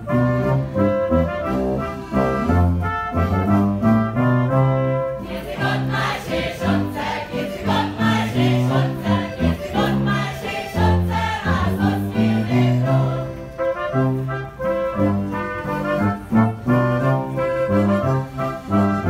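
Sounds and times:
brass band folk music: 0:00.0 - 0:19.0
group of voices singing: 0:05.2 - 0:14.1.

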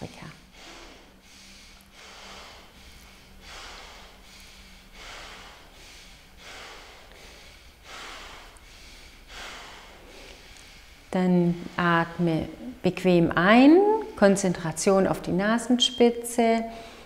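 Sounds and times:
forceful breaths through nose: 0:00.4 - 0:11.8.

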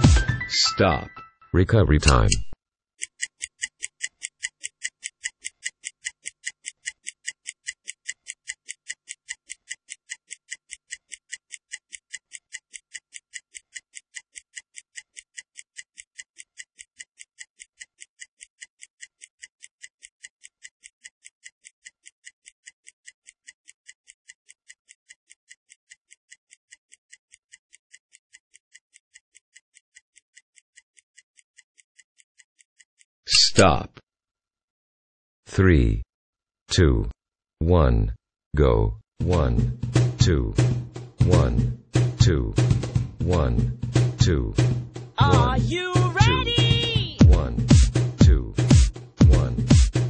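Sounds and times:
stopwatch ticking: 0:03.0 - 0:33.2, 0:44.2 - 0:50.0.

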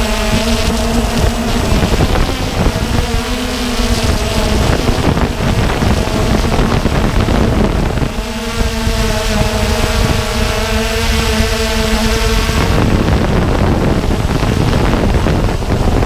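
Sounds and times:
drone propellers whirring: 0:00.0 - 0:16.0
wind buffeting microphone: 0:00.0 - 0:16.0.

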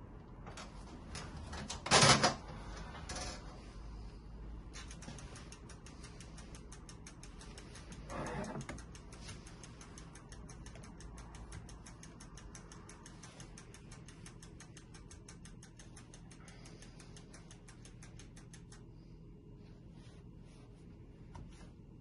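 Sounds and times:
low steady hum: 0:00.0 - 0:22.0
wind-up timer ticking: 0:04.6 - 0:19.0.

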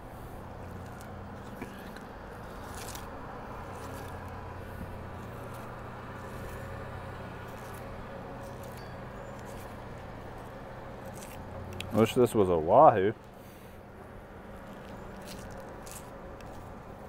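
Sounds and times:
low machine hum: 0:00.0 - 0:17.0
knife scraping fish: 0:00.8 - 0:03.1.

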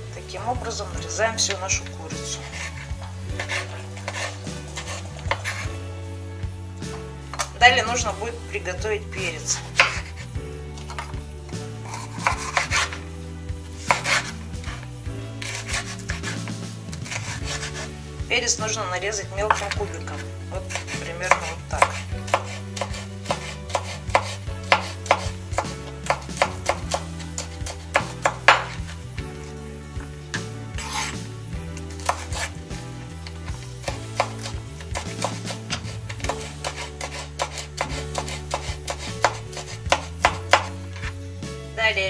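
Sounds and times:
knife chopping on wooden board: 0:02.2 - 0:05.7, 0:09.6 - 0:10.2, 0:11.8 - 0:13.0, 0:13.8 - 0:17.9, 0:19.4 - 0:29.0, 0:30.3 - 0:31.2, 0:31.8 - 0:32.6, 0:33.2 - 0:41.1.

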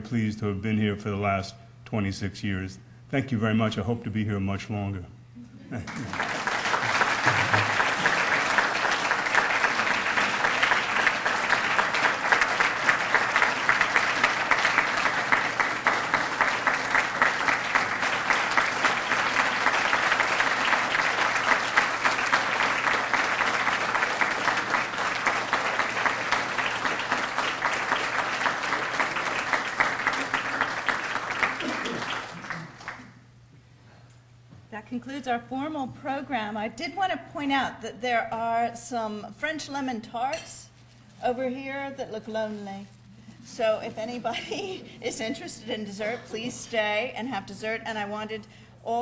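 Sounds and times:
audience applauding: 0:05.8 - 0:33.2.

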